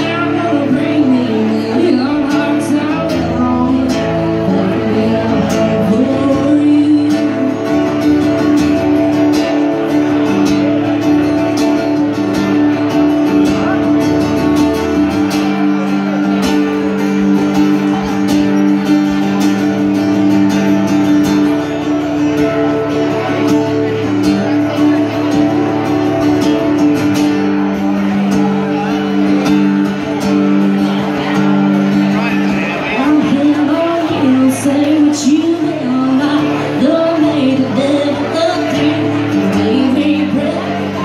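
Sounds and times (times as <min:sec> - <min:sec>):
woman singing: 0:00.0 - 0:09.1, 0:33.0 - 0:41.0
guitar strumming: 0:00.0 - 0:41.0.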